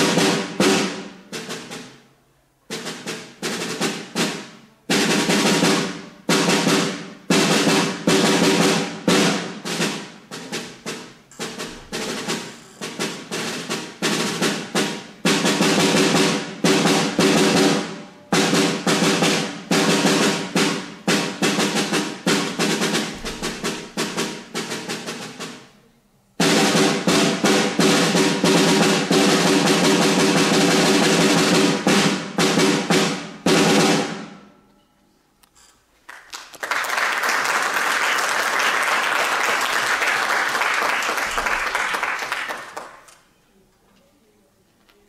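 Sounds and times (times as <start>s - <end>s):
snare drum rolls: 0.0s - 2.1s, 2.7s - 25.8s, 26.4s - 34.5s, 36.1s - 43.1s
audience applauding: 36.0s - 43.1s.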